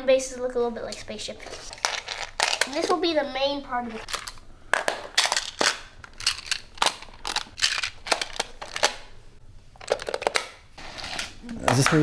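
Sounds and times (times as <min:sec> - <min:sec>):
plastic tiles clacking together: 0:01.7 - 0:03.0, 0:04.1 - 0:09.0, 0:09.8 - 0:12.0.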